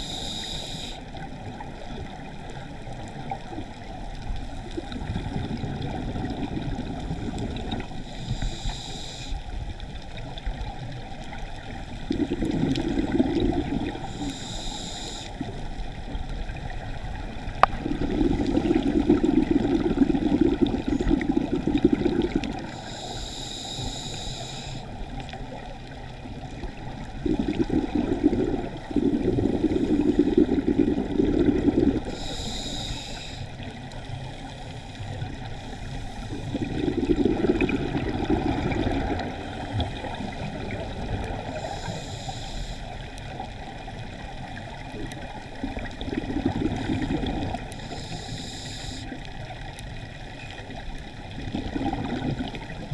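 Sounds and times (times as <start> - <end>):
regulator hissing inhale: 0.0 - 1.2, 7.0 - 10.0, 11.6 - 15.9, 17.6 - 25.4, 26.7 - 37.7, 38.3 - 43.5, 46.7 - 49.4
bubbling exhaled air: 4.6 - 9.3, 11.4 - 15.6, 16.5 - 33.7, 35.1 - 49.3, 51.0 - 52.9.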